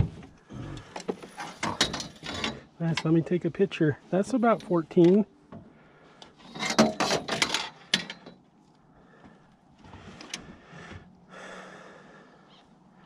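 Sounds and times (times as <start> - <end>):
rustling and scraping: 0.0 - 3.3, 4.0 - 11.1.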